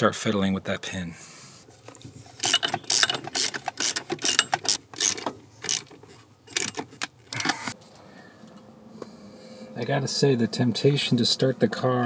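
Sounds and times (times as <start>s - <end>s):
ratchet wrench clicking: 2.4s - 5.9s, 6.5s - 7.6s.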